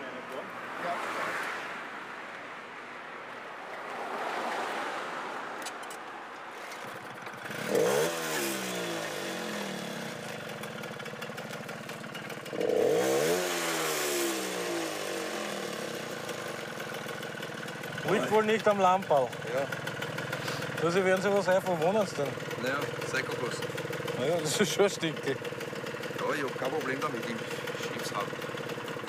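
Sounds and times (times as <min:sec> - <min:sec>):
moped engine revving and idling: 0:06.6 - 0:29.0.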